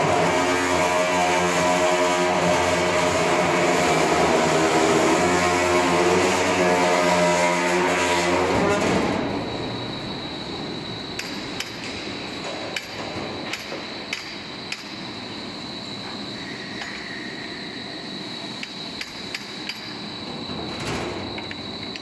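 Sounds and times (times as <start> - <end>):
machine motor drone: 0.0 - 9.9.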